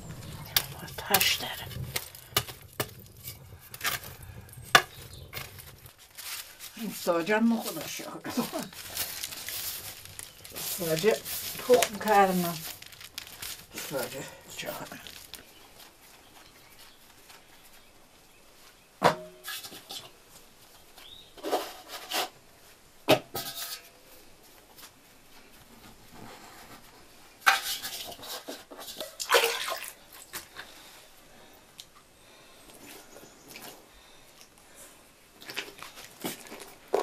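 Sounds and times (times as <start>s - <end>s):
rustling: 0.0s - 22.8s, 32.3s - 37.0s
metal tray clanks: 23.2s - 23.9s.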